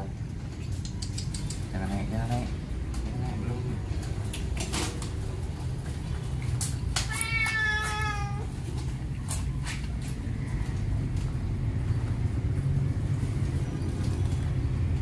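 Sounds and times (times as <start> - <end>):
cat meowing: 7.0 - 8.5.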